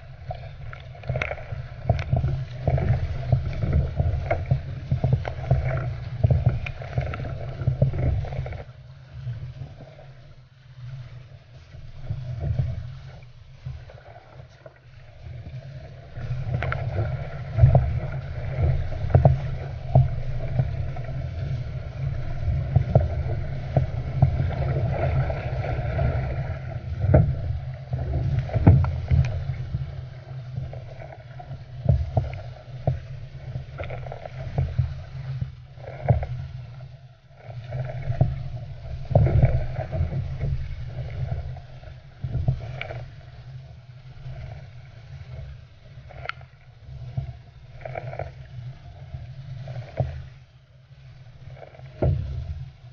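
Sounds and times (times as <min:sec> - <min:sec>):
water splashes: 0:00.0 - 0:52.9
water slapping against hull: 0:10.9 - 0:52.9.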